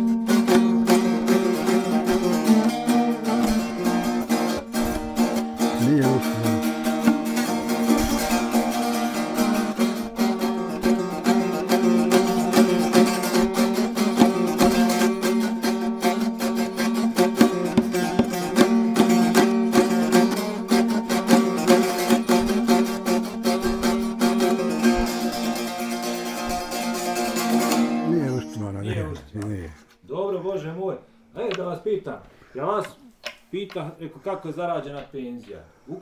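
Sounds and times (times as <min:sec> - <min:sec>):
long-necked lute strumming: 0:00.0 - 0:28.4.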